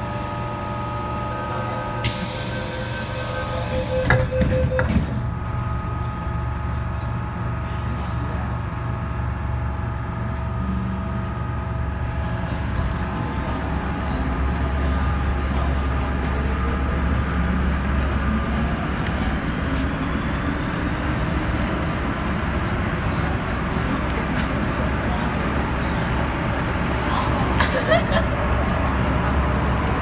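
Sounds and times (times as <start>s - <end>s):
train motors and wheels humming: 0.0s - 30.0s
door-closing warning beeps: 2.1s - 5.3s
train doors knocking shut: 3.9s - 5.3s.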